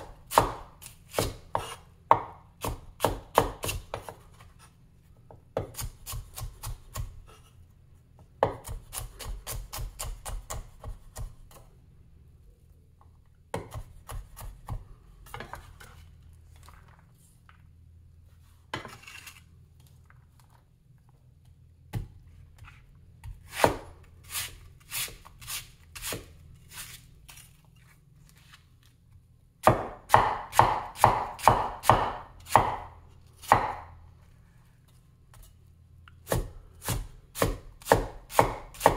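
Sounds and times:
cleaver chopping on wooden board: 0.3s - 4.2s, 29.6s - 33.9s, 36.3s - 38.9s.

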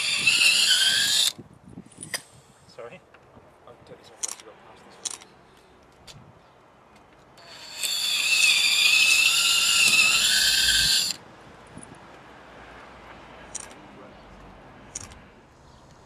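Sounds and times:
cordless drill whining: 0.0s - 1.3s, 7.4s - 11.2s.

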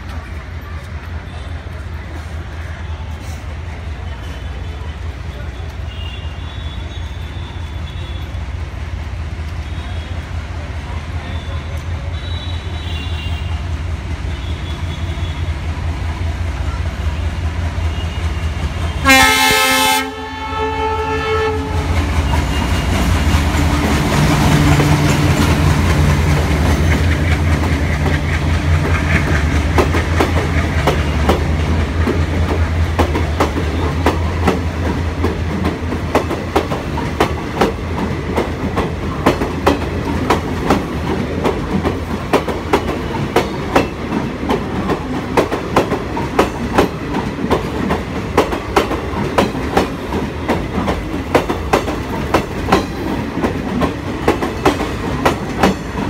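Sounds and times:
diesel locomotive engine drone: 0.0s - 56.0s
train horn blast: 17.9s - 22.8s
train wheels clicking over rail joints: 21.7s - 56.0s.

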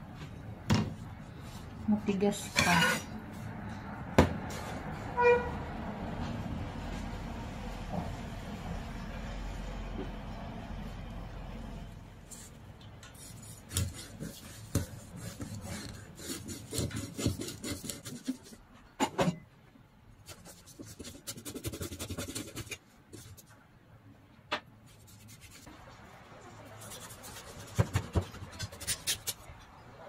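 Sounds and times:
knife sawing through fish: 13.3s - 18.5s.

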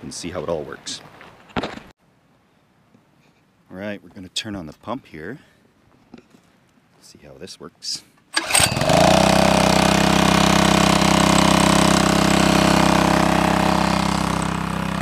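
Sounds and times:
small gasoline engine on water pump: 8.4s - 15.0s.

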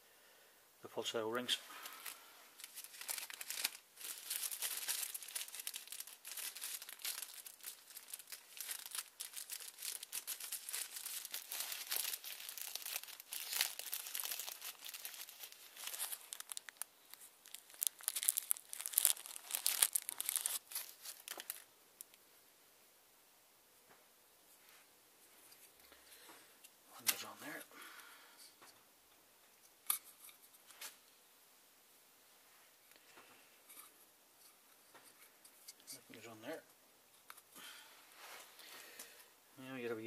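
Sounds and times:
plastic bag crinkling: 1.8s - 21.7s.

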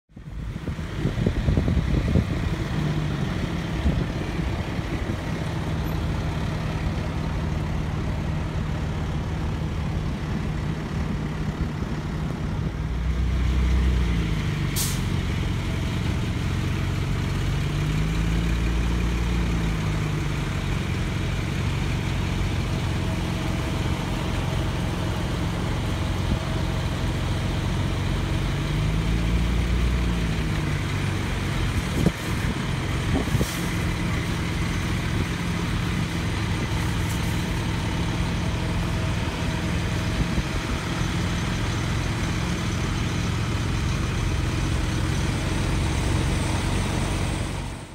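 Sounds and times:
diesel engines idling: 0.1s - 47.9s.

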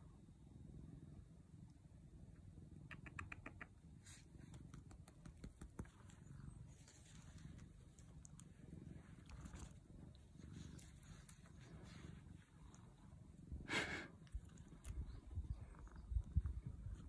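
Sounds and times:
faint low rustling: 4.0s - 17.0s.

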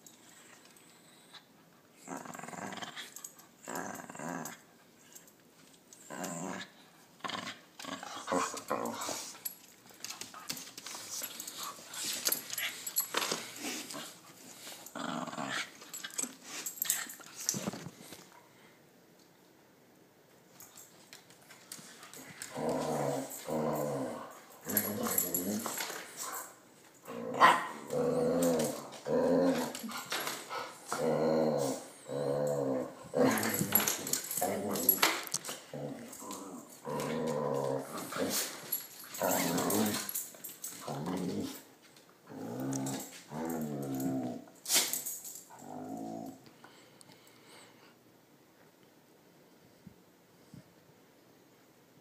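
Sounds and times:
dog growling: 2.0s - 4.6s, 14.9s - 15.7s, 22.2s - 25.8s, 27.0s - 38.4s, 42.3s - 44.5s, 45.6s - 46.5s.

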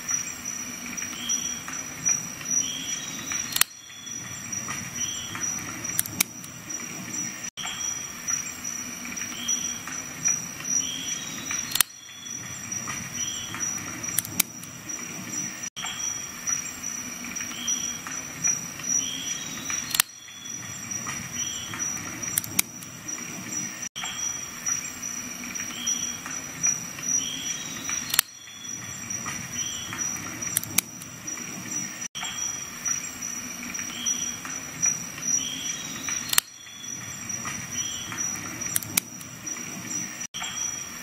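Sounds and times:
multi-tool metal clicks: 3.3s - 3.8s, 5.4s - 6.6s, 11.5s - 12.0s, 13.6s - 14.8s, 19.7s - 20.2s, 21.0s - 22.9s, 27.9s - 28.4s, 29.9s - 31.1s, 36.0s - 36.6s, 37.4s - 39.4s.

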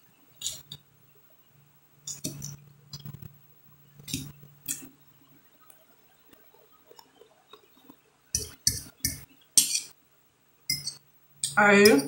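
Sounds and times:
faint steady hum: 0.0s - 12.0s
fork against glass plate: 8.4s - 10.0s, 10.7s - 12.0s.

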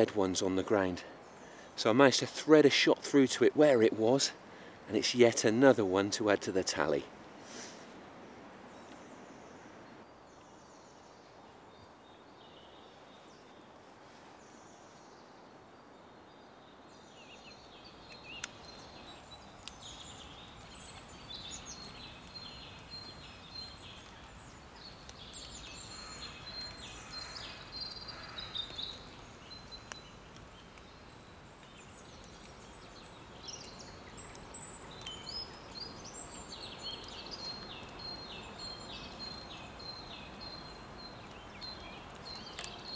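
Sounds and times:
faint outdoor hiss: 0.0s - 42.9s
small birds chirping: 8.6s - 42.9s.

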